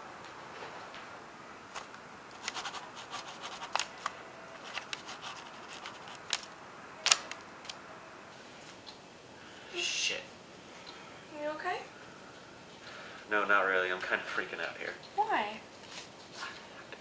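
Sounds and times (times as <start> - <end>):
pen scratching on paper: 2.4 - 3.9, 4.6 - 6.2.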